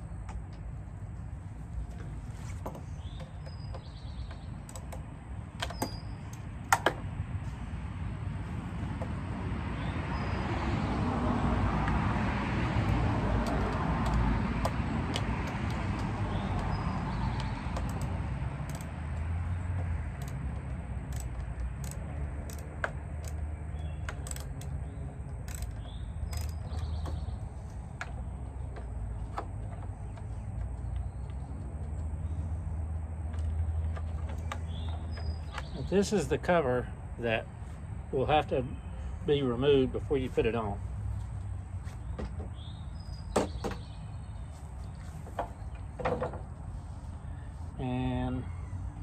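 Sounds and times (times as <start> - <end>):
bird chirps: 5.6 - 6.4, 23.6 - 28.3, 34.3 - 36.3, 47.0 - 49.0.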